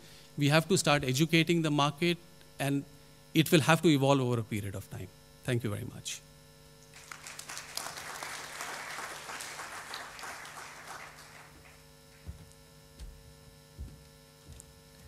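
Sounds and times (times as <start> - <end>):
electrical hum: 0.0 - 15.0
audience applauding: 6.9 - 12.3
soft low thumps: 12.3 - 15.0.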